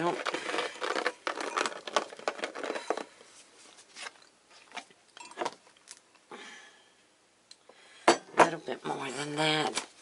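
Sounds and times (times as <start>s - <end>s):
bag rustling and crinkling: 0.0s - 5.6s.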